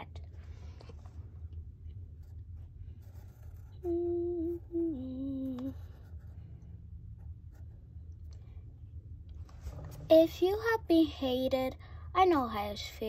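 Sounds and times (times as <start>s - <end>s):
person humming: 3.7s - 5.9s.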